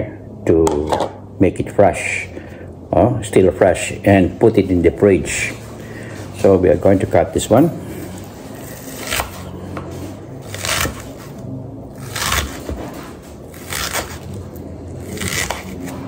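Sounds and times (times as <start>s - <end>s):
knife cutting through onion: 8.5s - 9.7s, 10.4s - 14.4s, 15.0s - 16.0s.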